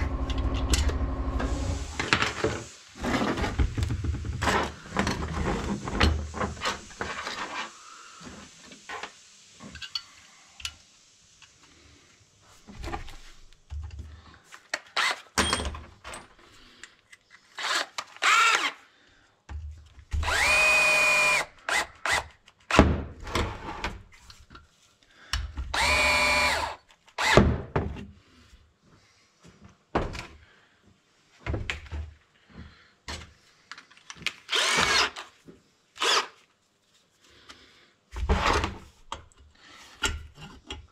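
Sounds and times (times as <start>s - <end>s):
cordless drill whining: 0.0s - 2.1s, 15.0s - 15.3s, 17.6s - 18.8s, 20.2s - 22.3s, 25.7s - 27.4s, 34.5s - 35.3s, 36.0s - 36.4s.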